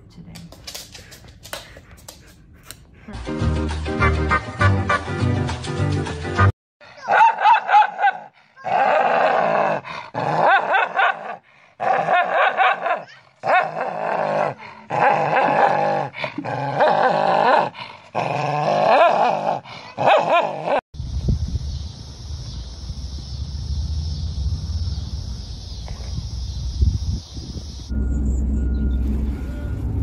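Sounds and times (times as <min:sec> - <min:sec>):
dog barking: 0:07.0 - 0:08.3, 0:10.4 - 0:11.4, 0:12.1 - 0:13.7, 0:19.9 - 0:20.6
dog snarling and growling: 0:08.6 - 0:20.8.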